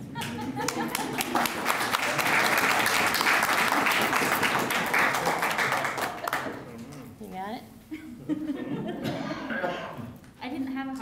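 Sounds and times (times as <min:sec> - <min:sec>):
crowd applauding: 0:00.0 - 0:06.7.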